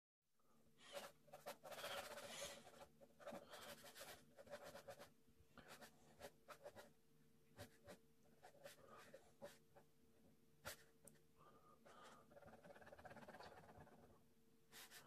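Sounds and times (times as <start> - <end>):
pen scratching on paper: 0.8 - 6.9, 7.6 - 9.8, 12.0 - 14.1.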